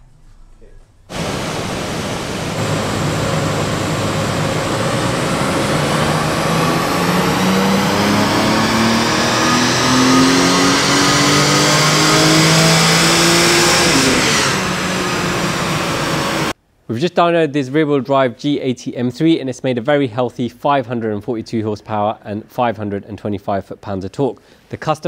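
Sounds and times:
car engine full-throttle pull: 0:01.1 - 0:16.6.

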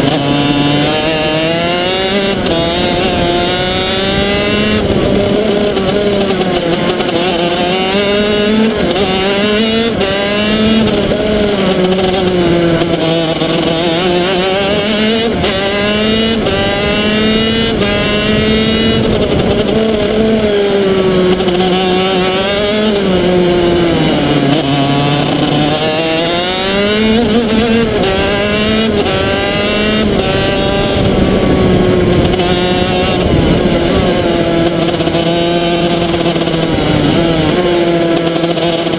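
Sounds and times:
two-stroke kart engine revving: 0:00.0 - 0:38.9.

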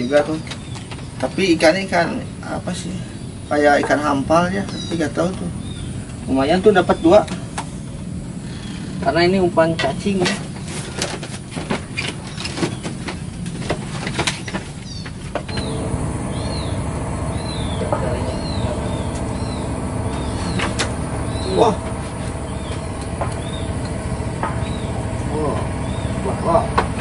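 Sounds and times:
steady motor drone: 0:00.0 - 0:27.0
sharp clicks and knocks: 0:09.8 - 0:15.7, 0:22.2 - 0:24.9
bird chirping high: 0:14.4 - 0:27.0.

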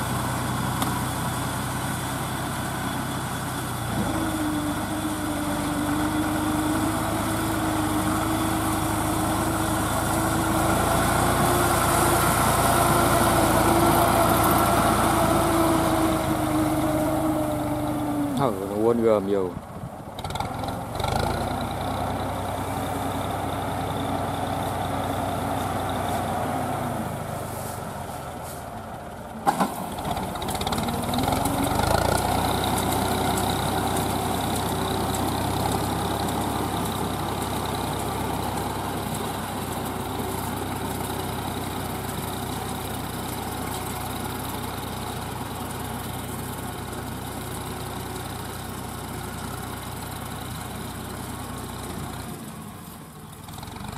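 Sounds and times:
tractor diesel engine under load: 0:00.0 - 0:53.9.

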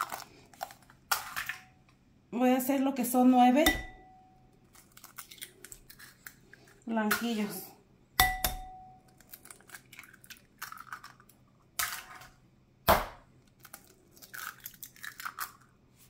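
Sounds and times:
eggshell crackling: 0:04.4 - 0:07.0, 0:09.0 - 0:12.1, 0:13.3 - 0:16.0
eggshell tapping: 0:08.2 - 0:09.0.

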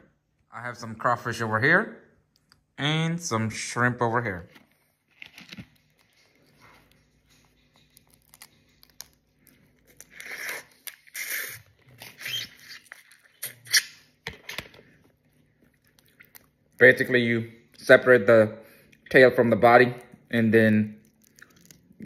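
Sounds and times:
crawfish shells crackling: 0:07.6 - 0:10.2, 0:20.7 - 0:22.0
mouth slurping: 0:10.0 - 0:13.9.

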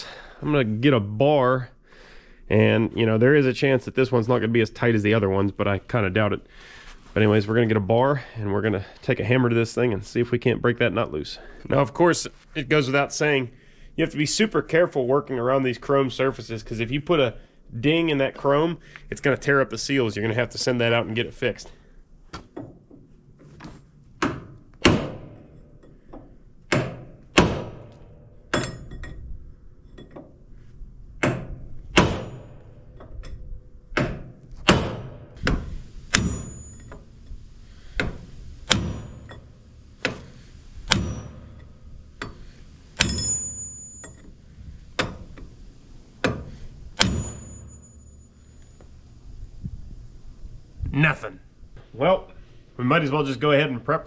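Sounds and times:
sledgehammer hitting steel bar: 0:24.8 - 0:25.6, 0:26.7 - 0:29.0, 0:31.2 - 0:32.9, 0:34.0 - 0:37.2, 0:38.0 - 0:44.3, 0:46.2 - 0:48.6.

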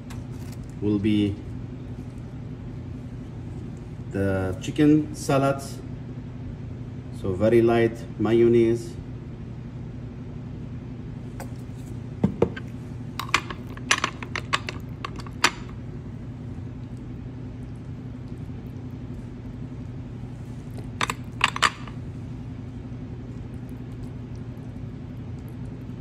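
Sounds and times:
low hum: 0:09.0 - 0:26.0.

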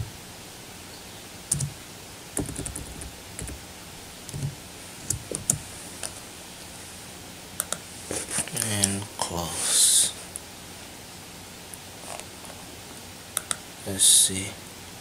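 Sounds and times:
keyboard typing: 0:01.5 - 0:01.8, 0:02.4 - 0:03.6, 0:04.3 - 0:05.6.

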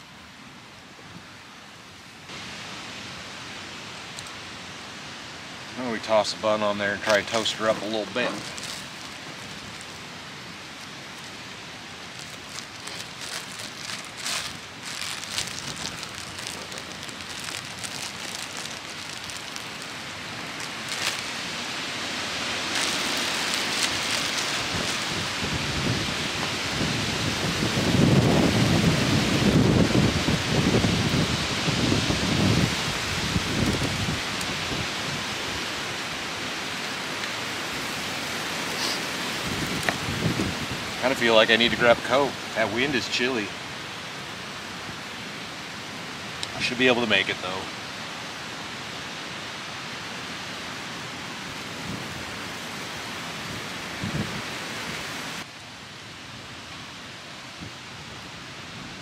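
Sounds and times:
campfire crackling: 0:00.0 - 0:59.0
wind rushing through trees: 0:00.0 - 0:59.0
sharp crackles: 0:06.9 - 0:26.5
wind on microphone: 0:22.5 - 0:35.6, 0:39.3 - 0:41.0, 0:53.4 - 0:55.4.

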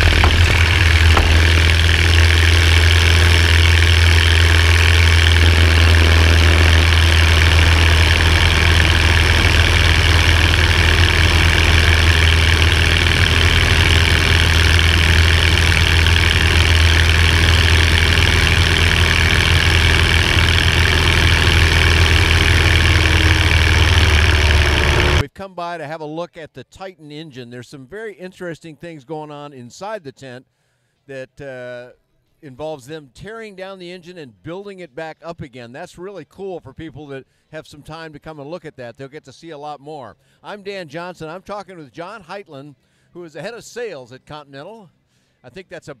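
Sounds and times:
light aircraft engine and propeller: 0:00.0 - 0:25.2.

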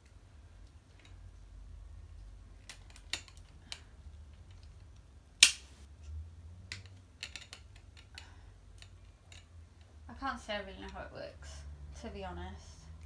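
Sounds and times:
loud sharp snap: 0:05.4 - 0:05.9.

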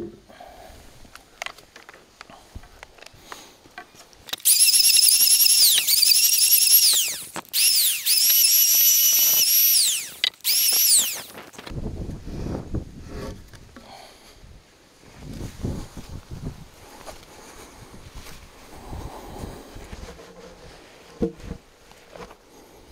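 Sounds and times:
electric planer motor whine: 0:04.4 - 0:11.4.

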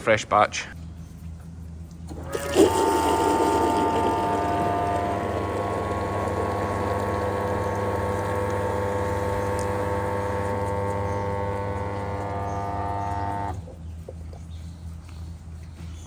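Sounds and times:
low hum: 0:00.7 - 0:16.0
motor whine: 0:02.1 - 0:13.6
water pouring into bowl: 0:02.2 - 0:12.8.

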